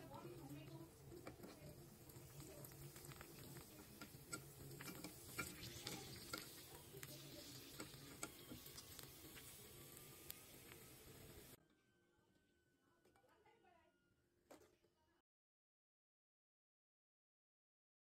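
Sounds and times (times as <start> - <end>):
deep-frying sizzle with crackles: 0.0 - 11.6.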